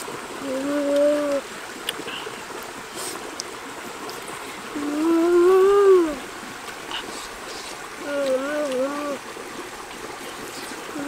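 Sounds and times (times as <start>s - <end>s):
shallow rocky stream running: 0.0s - 11.0s
boy humming with mouth full: 0.4s - 1.5s, 4.7s - 6.3s, 8.0s - 9.2s.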